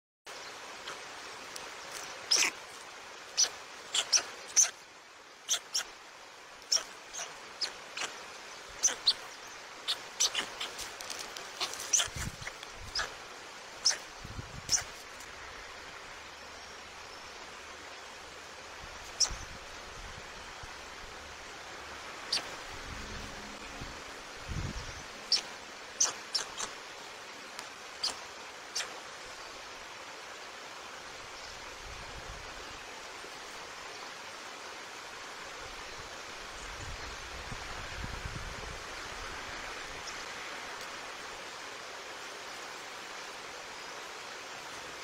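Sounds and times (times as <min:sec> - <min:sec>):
steady hiss: 0:00.3 - 0:45.0
stork chicks peeping: 0:03.4 - 0:04.8, 0:06.7 - 0:08.2, 0:08.8 - 0:13.2, 0:13.8 - 0:15.0, 0:25.3 - 0:26.7.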